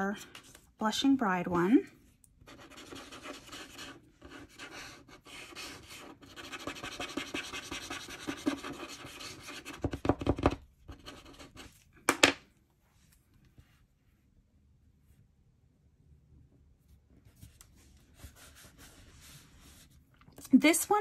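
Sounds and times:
glue pen scratching on paper: 0:02.4 - 0:11.7.

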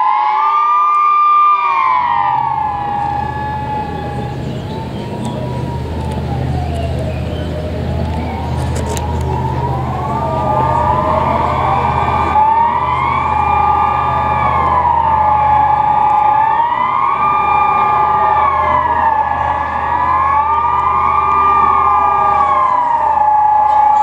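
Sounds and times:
sirens wailing: 0:00.0 - 0:24.0.

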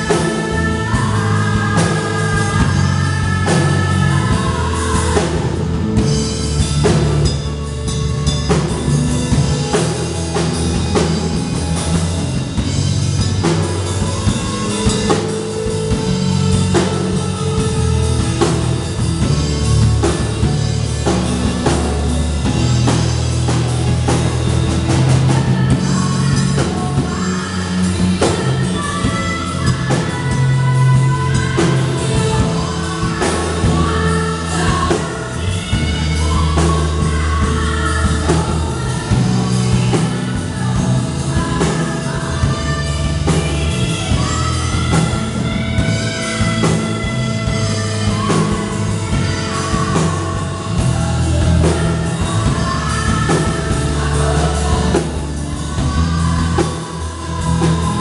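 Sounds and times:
rock band playing: 0:00.0 - 0:58.0
woman singing: 0:00.0 - 0:58.0.

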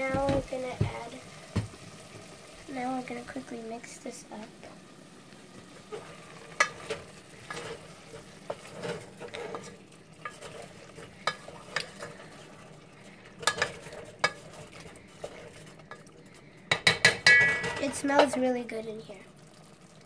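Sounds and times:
chicken frying: 0:00.0 - 0:20.0
wooden spoon knocking metal pot: 0:16.7 - 0:18.4.

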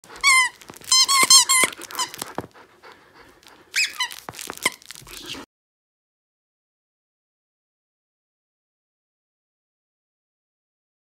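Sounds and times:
squeaky toy squeaking: 0:00.1 - 0:02.4, 0:03.7 - 0:05.3.

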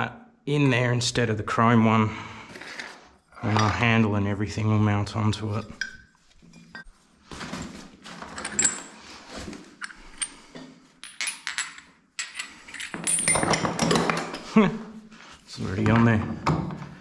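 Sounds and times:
metal tools clinking: 0:02.7 - 0:04.0, 0:05.4 - 0:06.9, 0:08.1 - 0:14.3.

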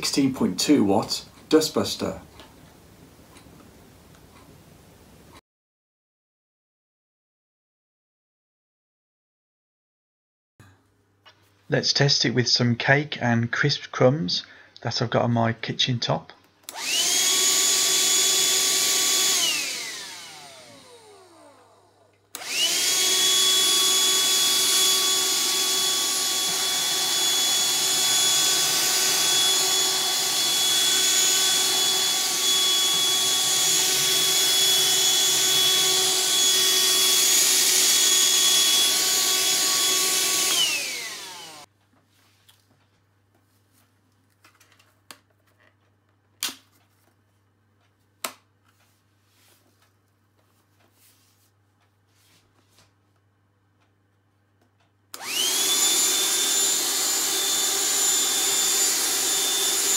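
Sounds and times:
handheld vacuum motor whine: 0:16.7 - 0:41.7, 0:55.1 - 0:59.9
motor winding down: 0:16.7 - 0:41.7, 0:55.2 - 0:59.9.

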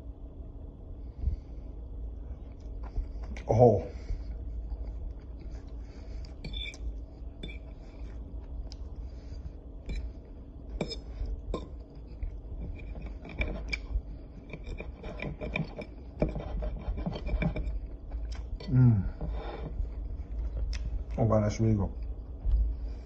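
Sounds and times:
steady low hum: 0:00.0 - 0:23.0
fork scraping ceramic plate: 0:06.4 - 0:06.8, 0:07.4 - 0:07.8, 0:09.8 - 0:10.2, 0:10.8 - 0:17.9.

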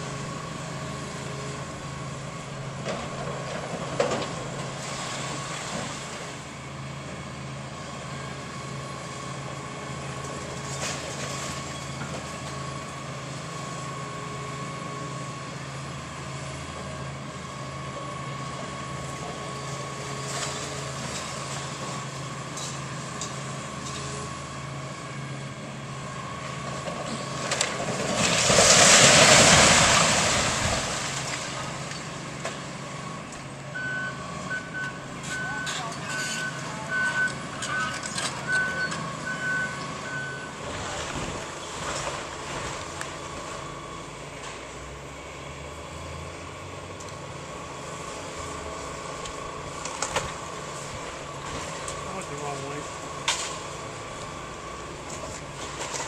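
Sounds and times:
excavator diesel engine running: 0:00.0 - 0:56.0
masonry collapsing crash: 0:27.1 - 0:32.1.

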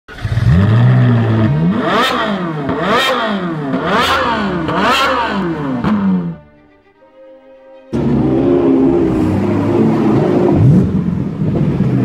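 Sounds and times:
engine revving hard: 0:00.1 - 0:06.4, 0:07.9 - 0:11.9.

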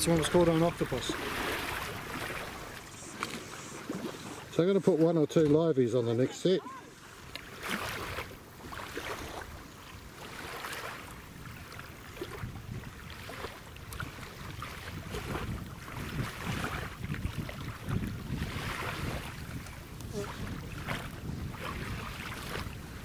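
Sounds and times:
small waves washing on shore: 0:00.0 - 0:23.0
wind buffeting microphone: 0:11.2 - 0:23.0.

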